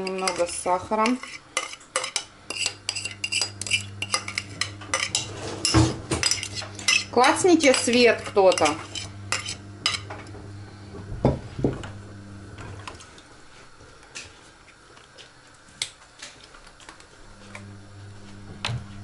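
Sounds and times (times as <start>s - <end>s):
spoon scraping glass bowl: 0.0s - 10.3s
low steady hum: 16.8s - 19.0s.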